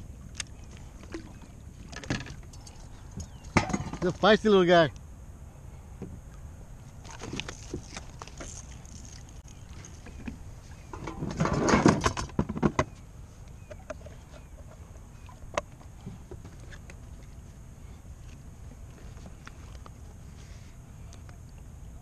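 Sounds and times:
fish thrashing against kayak: 7.0s - 12.4s.

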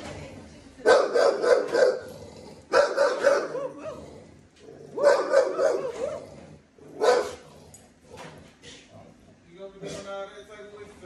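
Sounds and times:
small dog barking: 0.8s - 2.1s, 2.7s - 4.0s, 4.9s - 6.2s, 7.0s - 7.4s
dog yelping softly: 5.0s - 6.2s, 7.0s - 7.4s.

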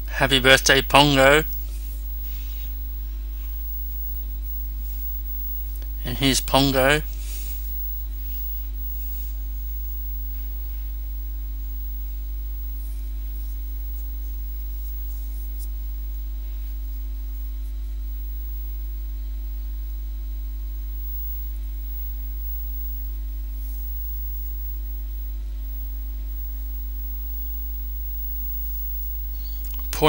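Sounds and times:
faint steady tones: 0.0s - 30.0s
low electrical hum: 0.0s - 30.0s.

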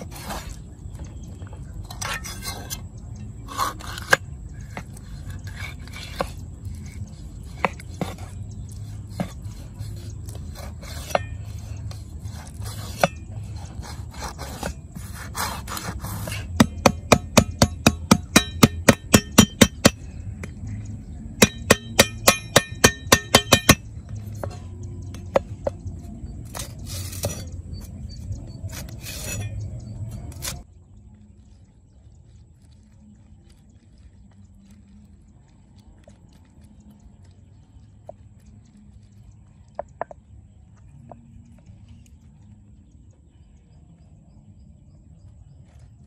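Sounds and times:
cleaver scraping fish skin: 0.0s - 0.7s, 3.4s - 19.9s, 26.1s - 28.0s, 28.6s - 30.6s
cleaver chopping on wooden block: 14.2s - 20.0s, 21.4s - 23.8s.

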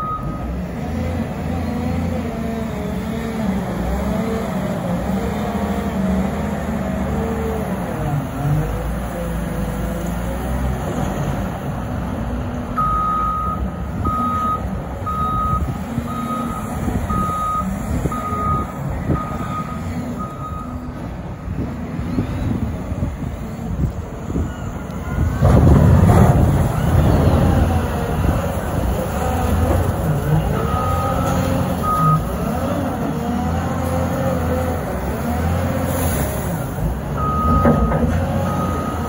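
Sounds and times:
reverse alarm beeps: 0.0s - 0.4s, 12.8s - 20.8s, 37.2s - 39.0s
diesel engine revving: 0.0s - 23.9s, 24.8s - 39.0s.

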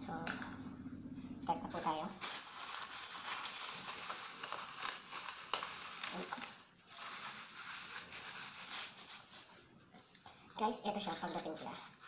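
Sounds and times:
packaging rustling and crinkling: 2.2s - 9.7s.

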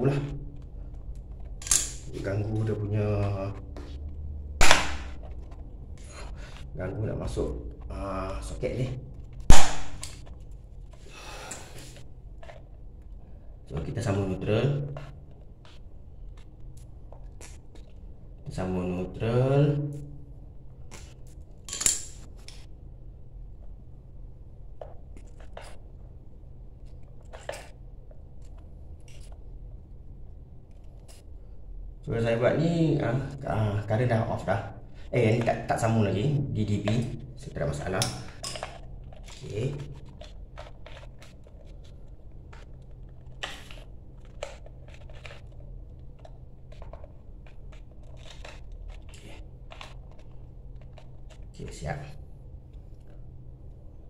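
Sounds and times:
steady low hum: 0.0s - 54.0s
pliers crunching on wire: 4.6s - 5.2s, 9.4s - 10.2s
wires scraping and clicking: 26.7s - 29.6s, 36.8s - 53.3s.

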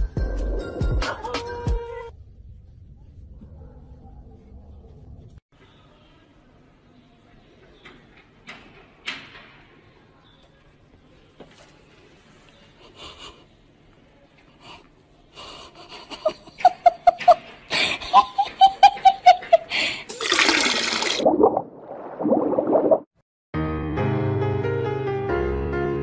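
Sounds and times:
person laughing: 15.8s - 19.9s.

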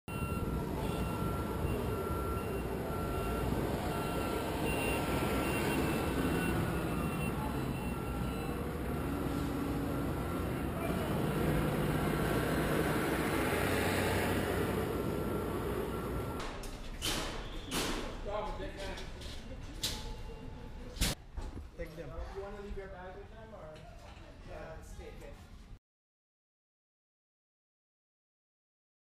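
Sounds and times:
low engine rumble: 0.1s - 16.4s
reversing alarm beeping: 0.1s - 16.4s.

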